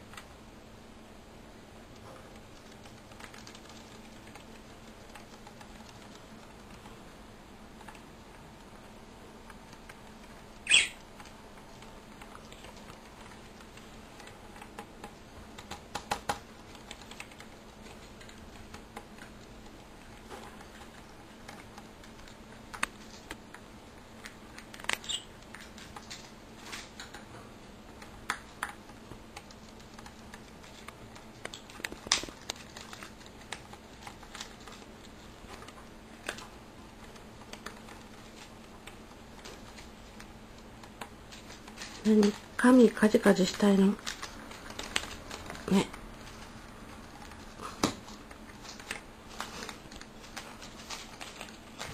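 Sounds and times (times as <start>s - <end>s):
bird beaks and feet tapping: 9.5s - 23.6s, 24.2s - 42.5s.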